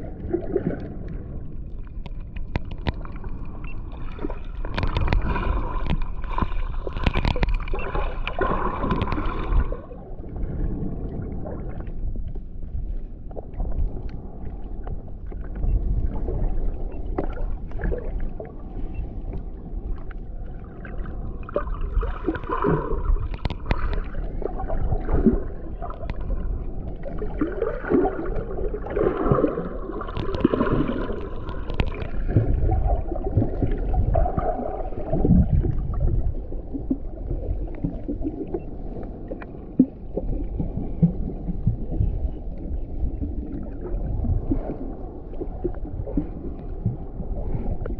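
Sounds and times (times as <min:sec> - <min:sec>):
bubbly gurgling: 0:00.0 - 0:01.3, 0:02.8 - 0:10.1, 0:20.7 - 0:38.8
underwater water rumble: 0:00.0 - 0:47.9
faint underwater clicks: 0:00.1 - 0:47.9.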